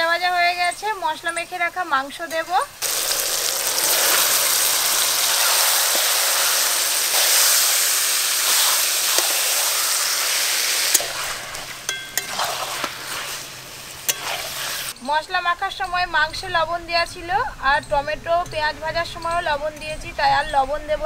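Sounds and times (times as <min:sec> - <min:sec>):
chicken sizzling in hot oil: 0:02.8 - 0:15.0
spatula stirring in a wok: 0:02.8 - 0:15.0.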